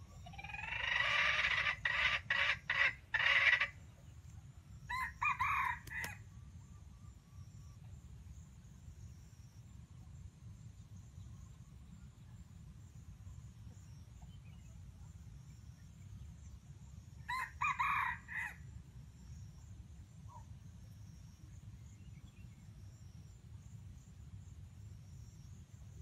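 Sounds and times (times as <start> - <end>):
rooster crowing: 4.9 - 6.2, 17.3 - 18.6.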